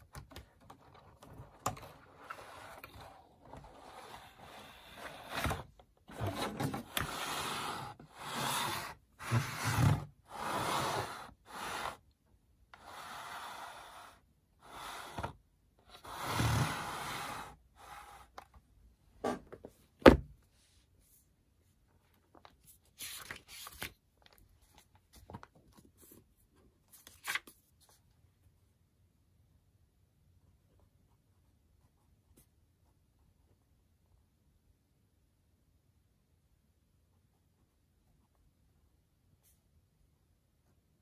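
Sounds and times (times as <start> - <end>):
plastic stand scraping across desk: 2.1 - 12.0.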